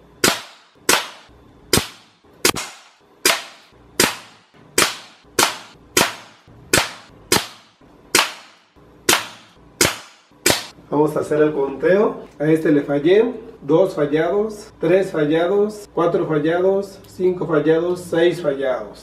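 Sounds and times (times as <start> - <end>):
air rifle shots cracking: 0.2 - 10.7.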